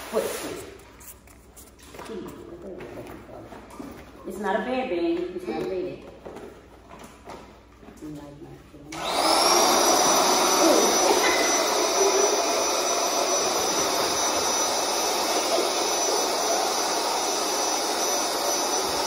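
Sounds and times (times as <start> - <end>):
electric air pump running: 8.9 - 19.0.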